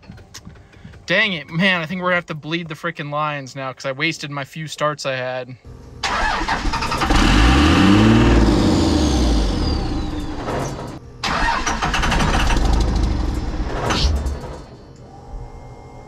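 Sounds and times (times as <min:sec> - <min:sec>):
diesel engine starting and revving: 0:06.0 - 0:14.8.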